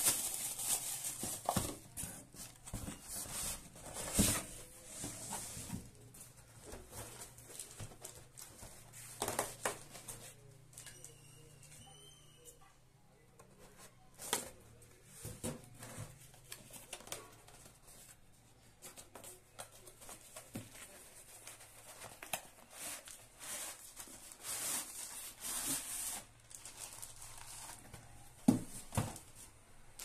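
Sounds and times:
packaging rustling and crinkling: 0.0s - 10.4s, 18.8s - 30.0s.

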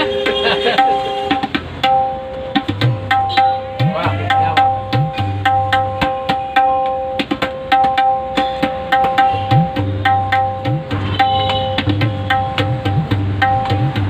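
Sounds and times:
treble drum ringing: 0.0s - 14.0s.

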